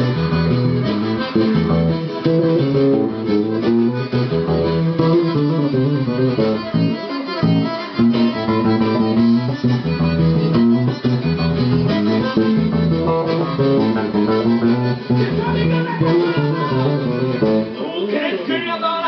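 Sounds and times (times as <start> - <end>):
electric bass guitar groove: 0.0 - 17.8
other pitched instruments: 0.0 - 18.8.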